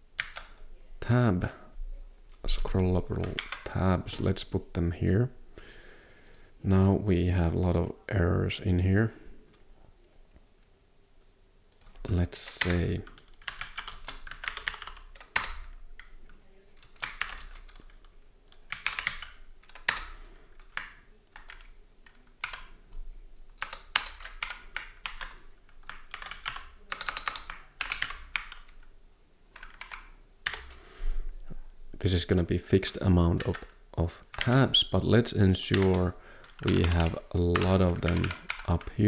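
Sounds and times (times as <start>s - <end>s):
typing on computer keyboard: 0.2s - 0.6s, 3.1s - 3.7s, 11.7s - 22.8s, 23.5s - 28.9s, 29.5s - 30.8s, 33.4s - 34.6s, 35.6s - 38.9s.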